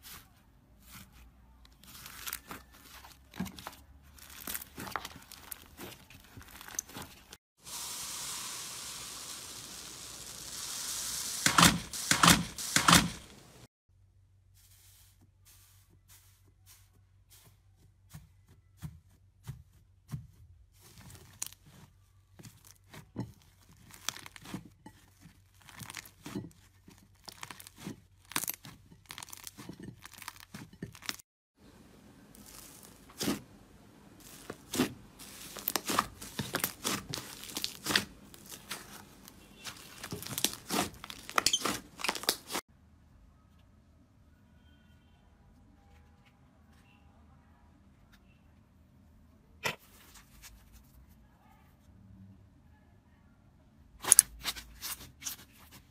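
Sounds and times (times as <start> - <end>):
slime crackling and popping: 3.6 - 7.0, 23.6 - 24.6, 25.5 - 31.2, 32.3 - 33.4, 34.2 - 42.6.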